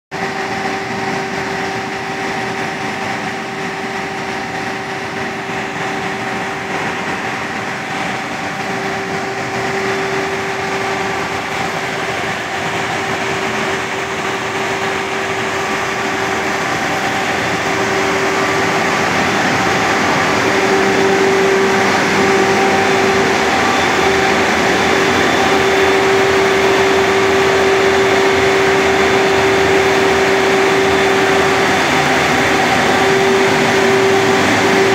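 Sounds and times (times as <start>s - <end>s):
grain drier machinery drone: 0.2s - 34.9s.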